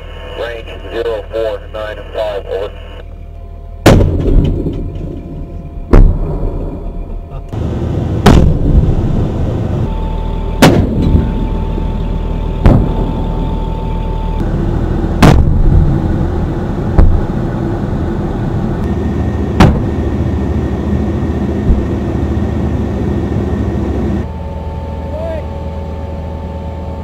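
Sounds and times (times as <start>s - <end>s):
low rumble: 0.0s - 27.0s
cannon booms: 3.8s - 6.8s, 8.1s - 9.3s, 10.6s - 11.4s, 12.6s - 13.4s, 15.1s - 16.2s, 16.9s - 17.4s, 19.5s - 20.2s, 21.6s - 22.1s.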